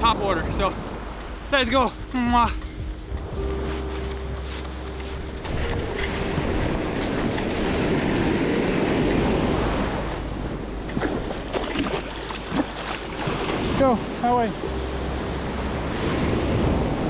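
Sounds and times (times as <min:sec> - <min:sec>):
wind rumbling on microphone: 0:00.0 - 0:17.0
surf washing over beach: 0:05.4 - 0:17.0.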